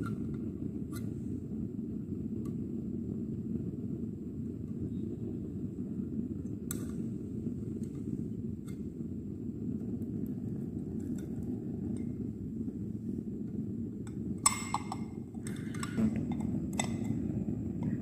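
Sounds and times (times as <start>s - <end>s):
low rumble: 15.7s - 18.0s.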